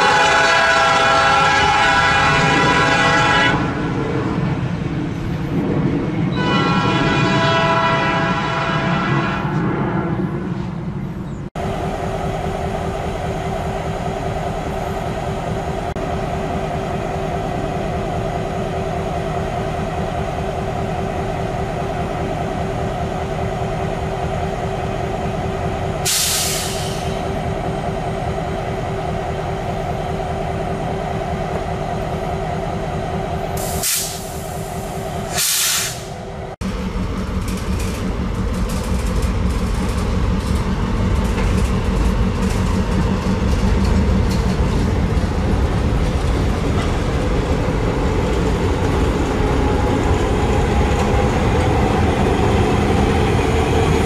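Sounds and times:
locomotive horn blasts: 0.0s - 3.8s, 6.3s - 9.6s
diesel locomotive engine drone: 0.0s - 54.0s
train rumble: 0.0s - 54.0s
air hiss: 26.1s - 27.2s, 33.6s - 36.2s.

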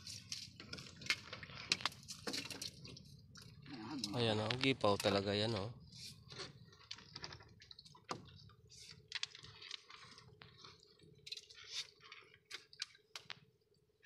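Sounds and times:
small water splashes and drips: 0.0s - 4.3s, 6.6s - 13.6s.

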